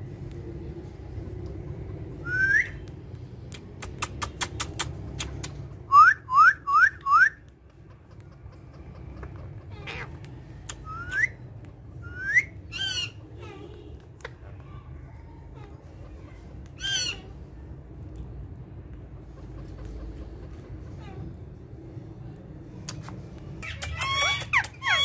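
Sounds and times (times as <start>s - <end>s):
steady low rumble: 0.0s - 5.9s
parakeets whistling: 12.0s - 13.2s.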